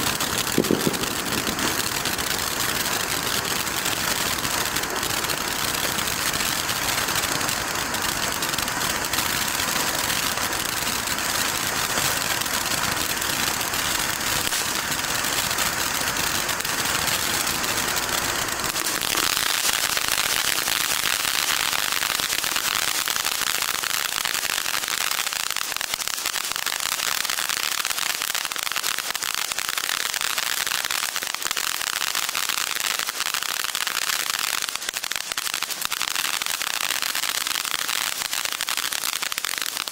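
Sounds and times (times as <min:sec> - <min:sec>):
firework crackle: 0:00.0 - 0:39.9
firework fountain hissing: 0:00.0 - 0:39.9.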